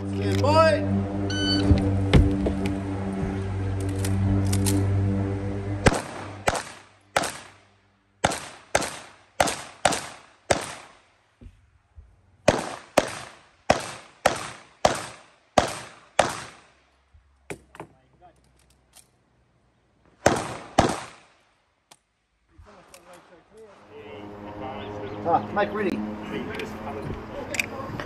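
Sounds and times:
pistol shots: 5.8s - 7.6s, 8.2s - 11.0s, 12.4s - 16.7s, 20.2s - 21.3s.

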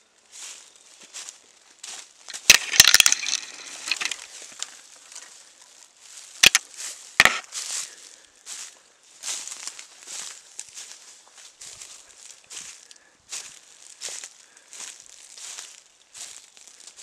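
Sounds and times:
footsteps crunching through dry leaves: 0.0s - 17.0s
sticks snapping underfoot: 2.3s - 4.8s, 6.4s - 7.6s.

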